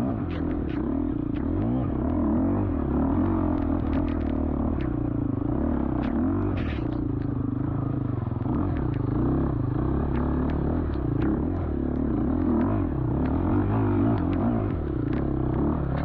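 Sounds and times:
motorcycle engine revving: 0.0 - 16.0
sharp clicks and knocks: 3.2 - 5.2, 10.0 - 16.0.

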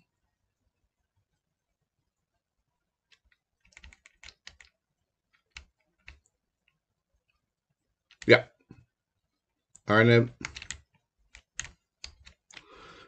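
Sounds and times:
faint keyboard keystrokes: 3.1 - 7.4, 9.7 - 12.8.

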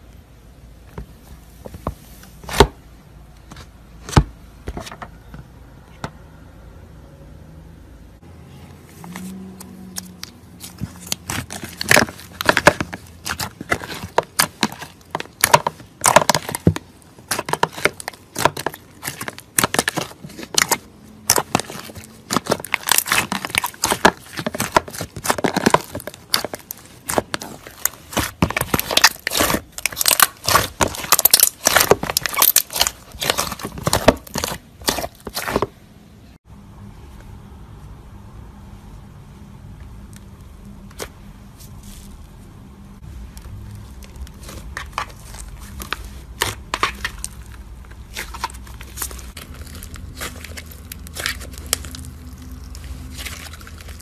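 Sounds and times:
slime crackling and popping: 9.9 - 35.7, 43.3 - 54.0.

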